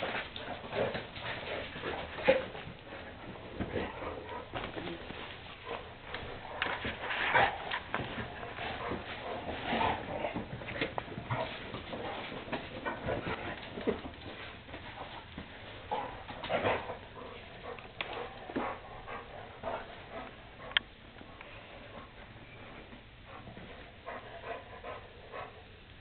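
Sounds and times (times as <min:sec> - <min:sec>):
paws scuffling on tile floor: 0:00.0 - 0:25.6.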